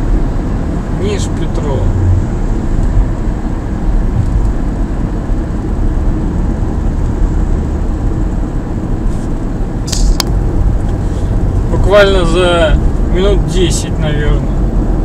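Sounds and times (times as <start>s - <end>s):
car driving heard from inside: 0.0s - 15.0s.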